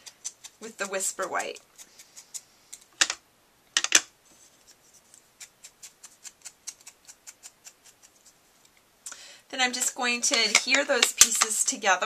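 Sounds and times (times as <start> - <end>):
clicks and knocks: 3.0 - 3.2, 3.8 - 4.1.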